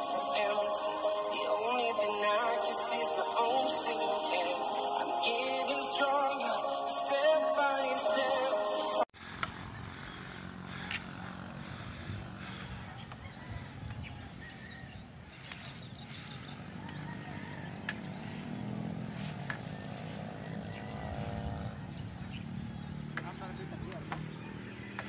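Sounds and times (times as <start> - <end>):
intro music: 0.0 - 9.1
insects droning: 0.0 - 25.0.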